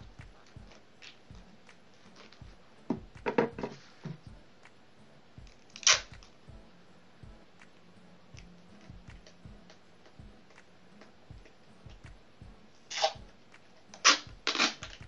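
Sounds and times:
tape ripped from roll: 0:05.7 - 0:06.2, 0:12.9 - 0:13.2, 0:14.0 - 0:15.0.

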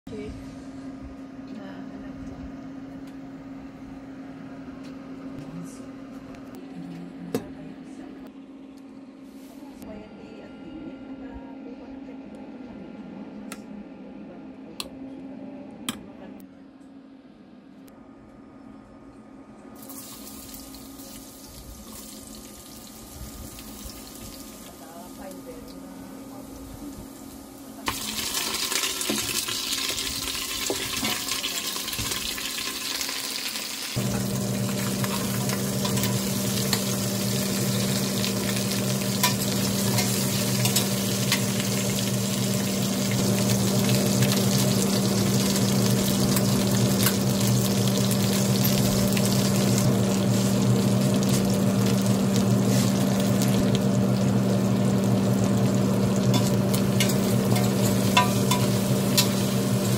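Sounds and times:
low electric hum: 0:00.1 - 0:59.9
meat sizzling in a pot: 0:19.8 - 0:25.1, 0:27.2 - 0:59.9.

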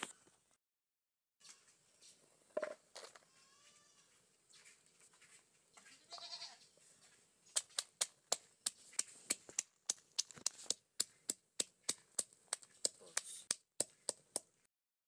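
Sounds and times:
pestle pounding in wooden mortar: 0:09.3 - 0:14.5.

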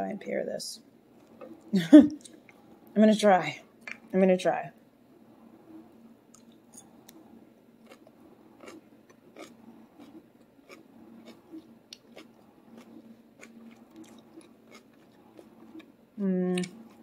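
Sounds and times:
faint steady hum: 0:00.0 - 0:17.0
crunchy chewing: 0:07.8 - 0:16.0.

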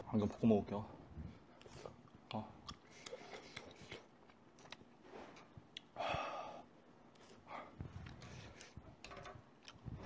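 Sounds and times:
person breathing heavily: 0:06.0 - 0:06.7.

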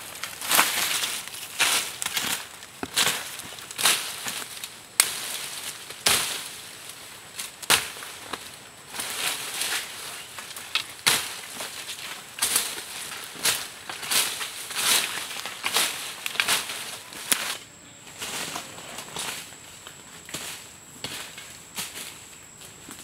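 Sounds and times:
undergrowth rustling and crunching: 0:00.0 - 0:23.0
stems snapping: 0:00.1 - 0:06.4, 0:09.7 - 0:17.6.

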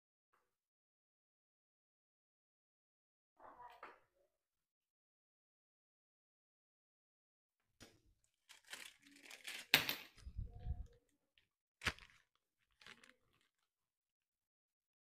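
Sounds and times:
packing material crinkling: 0:08.3 - 0:11.0, 0:11.8 - 0:13.8.

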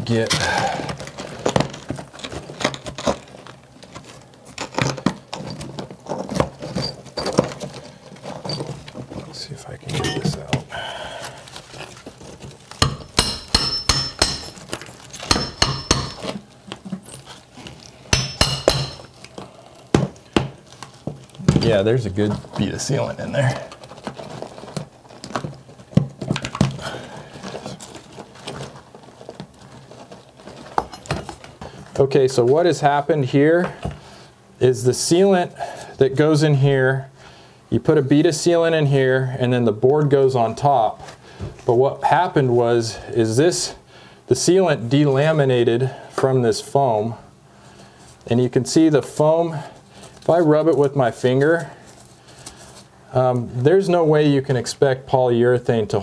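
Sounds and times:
hand tool chipping and scraping tile: 0:12.8 - 0:16.4.

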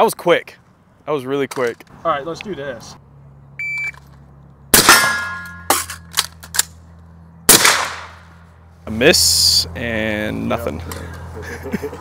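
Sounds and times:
shot timer beep: 0:03.6 - 0:04.0
rifle shots: 0:04.7 - 0:05.3, 0:07.5 - 0:08.3
steel target ringing: 0:04.7 - 0:06.1.

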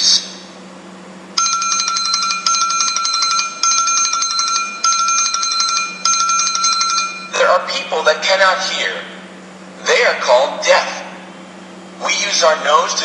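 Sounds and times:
bell ringing in rapid trill: 0:01.4 - 0:07.7.

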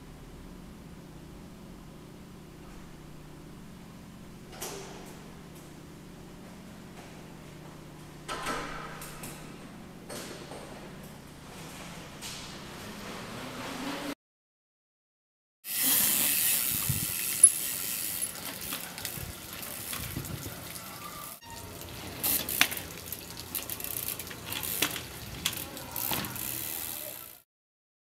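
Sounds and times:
bicycle knocking on concrete: 0:16.2 - 0:20.8, 0:21.6 - 0:27.4.

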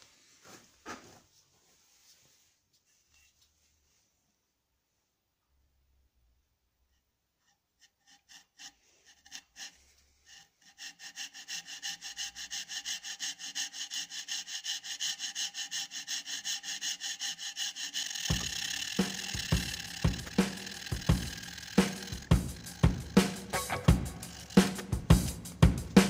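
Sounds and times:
wire rasping on wood: 0:06.9 - 0:26.0.

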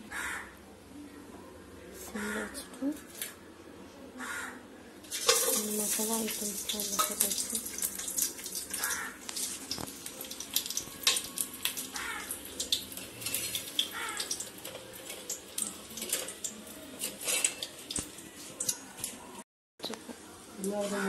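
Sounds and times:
spices sizzling in hot oil: 0:05.1 - 0:19.2.

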